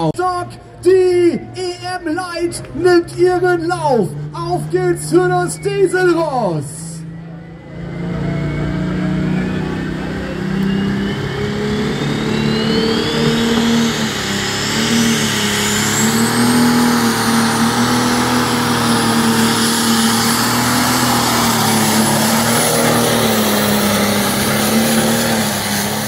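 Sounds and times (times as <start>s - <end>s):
diesel engine under load: 0.0s - 26.0s
high turbo whistle: 6.9s - 26.0s.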